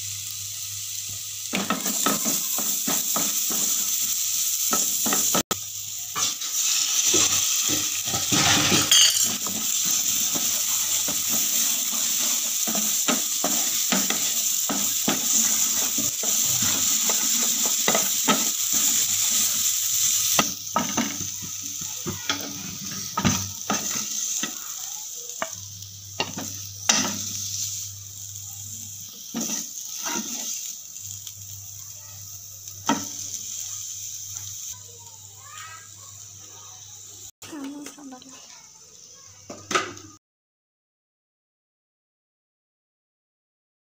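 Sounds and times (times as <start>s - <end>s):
onions sizzling in oil: 0.0s - 40.2s
spatula tapping pan: 1.5s - 3.9s, 8.9s - 19.0s
spatula scraping pan: 1.6s - 3.9s, 6.2s - 21.3s, 22.0s - 24.6s, 29.3s - 30.7s.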